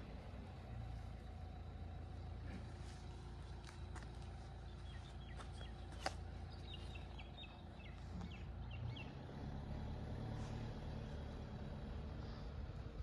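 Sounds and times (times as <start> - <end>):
bird chirping: 0.9 - 9.6.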